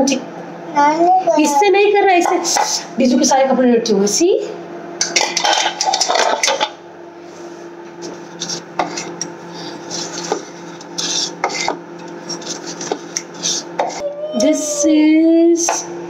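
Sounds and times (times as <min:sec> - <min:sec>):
steady low hum: 0:00.0 - 0:16.0
metal spoon scraping bowl: 0:08.4 - 0:14.0.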